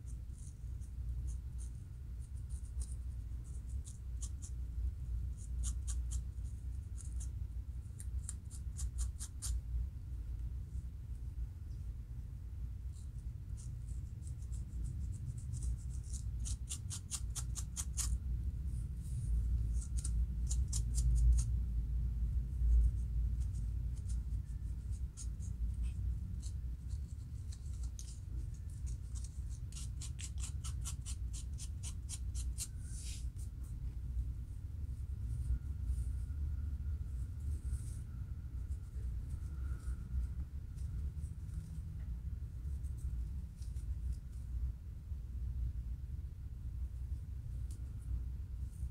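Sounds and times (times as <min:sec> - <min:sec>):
comb scratching scalp: 0:00.0 - 0:04.6, 0:05.3 - 0:09.6, 0:13.1 - 0:18.2, 0:19.3 - 0:21.6, 0:22.8 - 0:33.5.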